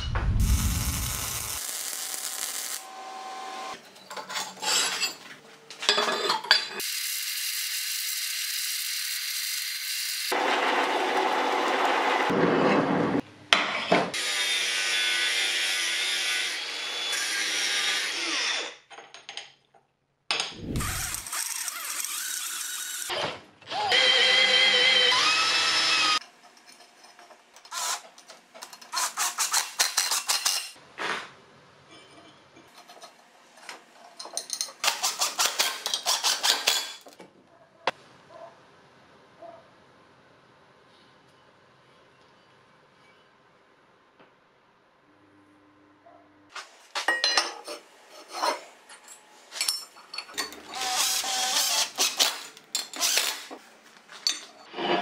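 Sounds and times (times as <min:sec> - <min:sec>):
angle grinder grinding steel: 0:20.6 - 0:23.1.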